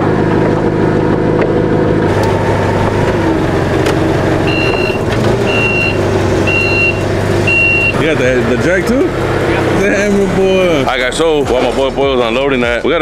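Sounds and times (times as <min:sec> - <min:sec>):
forklift engine running: 0:00.0 - 0:13.0
reversing alarm beeps: 0:04.5 - 0:08.0.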